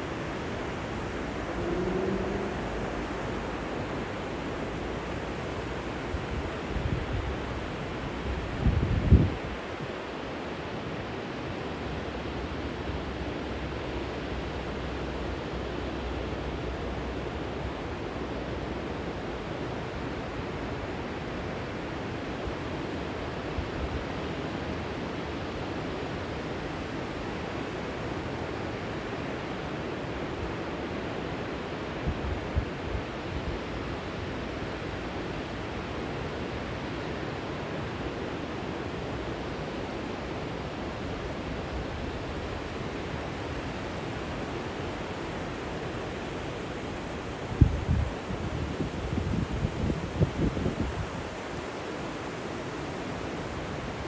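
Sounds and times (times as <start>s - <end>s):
low bumps: 1.0s - 4.3s.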